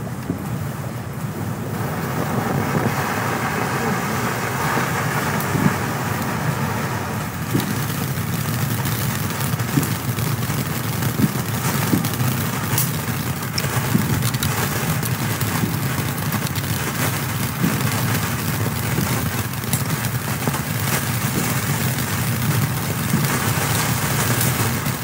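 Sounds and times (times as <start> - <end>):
firework fountain hissing: 0.0 - 25.0
sharp crackles: 0.0 - 25.0.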